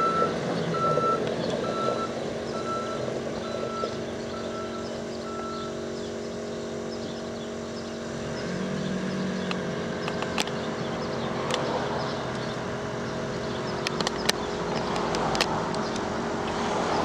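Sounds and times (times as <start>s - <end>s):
reversing alarm beeping: 0.0s - 6.0s
diesel engine running: 0.0s - 17.0s
sharp clicks: 9.4s - 10.6s, 11.4s - 11.7s, 13.8s - 16.1s.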